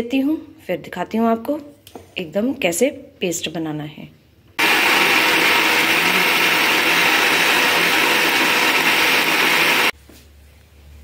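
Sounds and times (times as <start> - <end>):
electric grinder whirring: 4.6 - 9.9.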